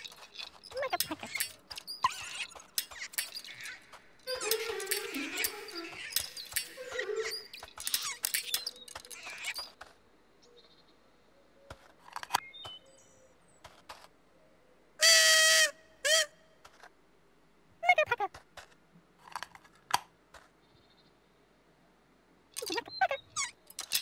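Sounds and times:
light squeaks and clicks: 0.0s - 10.0s, 11.7s - 14.2s, 22.6s - 24.0s
toy trumpet toots: 2.8s - 8.4s, 15.0s - 16.3s.

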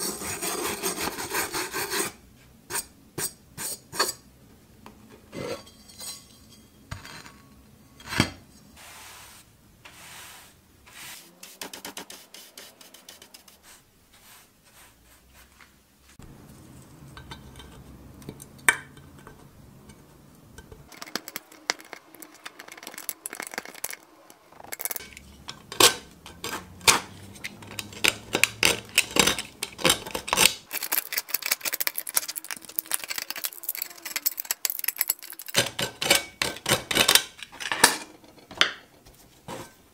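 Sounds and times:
metal tools scraping rust: 5.3s - 8.3s, 19.0s - 38.5s.

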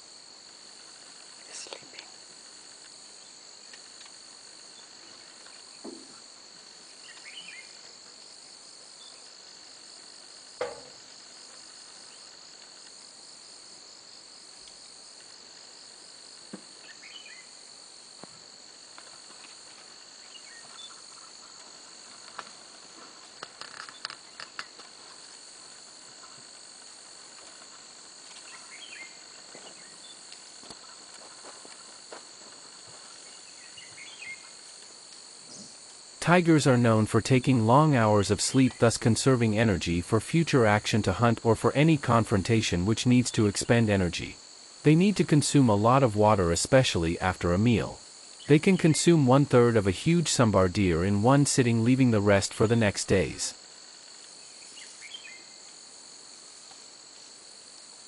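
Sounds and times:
insect chorus: 0.0s - 58.0s
sharp knock: 10.6s - 11.0s.

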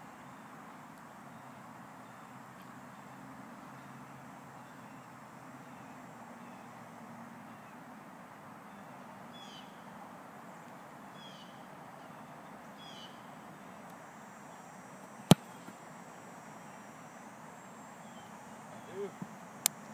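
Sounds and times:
outdoor background noise: 0.0s - 19.9s
foot kicking a football: 15.3s - 15.8s.

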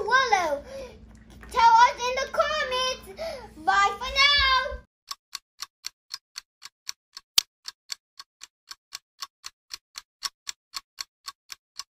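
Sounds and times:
even ticking: 5.1s - 11.9s.

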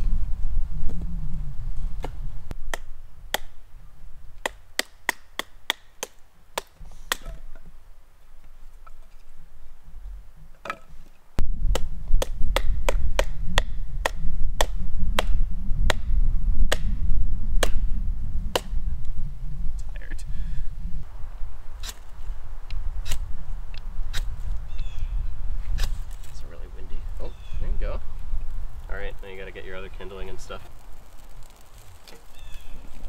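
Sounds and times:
hatchet splitting wood: 2.0s - 3.6s, 4.4s - 7.6s, 11.7s - 16.1s, 16.7s - 17.0s, 17.6s - 17.8s, 18.5s - 18.8s
baton striking hatchet: 4.4s - 7.4s.

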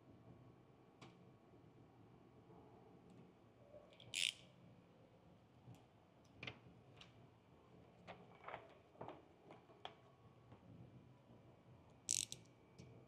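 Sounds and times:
blade tip clicks and scratches: 12.1s - 12.4s.

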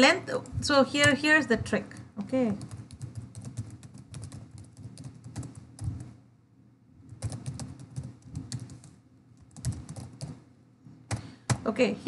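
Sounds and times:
computer keyboard typing: 1.9s - 6.2s, 7.1s - 10.4s.

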